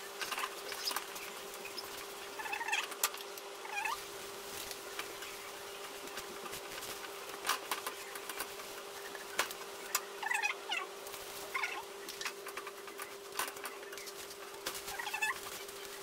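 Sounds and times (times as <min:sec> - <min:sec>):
steady hum: 0:00.0 - 0:16.0
squeaky chirps: 0:00.6 - 0:02.9, 0:09.9 - 0:10.9, 0:11.5 - 0:12.4, 0:14.9 - 0:15.7.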